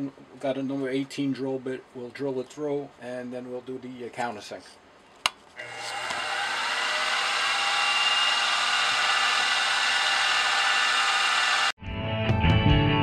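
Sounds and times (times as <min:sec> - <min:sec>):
drill spotting hole in metal: 0:05.6 - 0:11.8
milling machine spindle running: 0:05.6 - 0:11.8.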